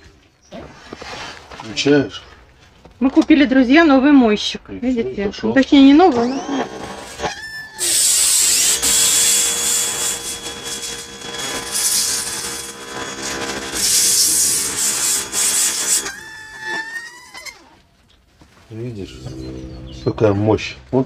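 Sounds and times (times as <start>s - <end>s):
pump motor humming: 6.2s - 16.7s
pressure washer spray hissing: 13.8s - 16.0s.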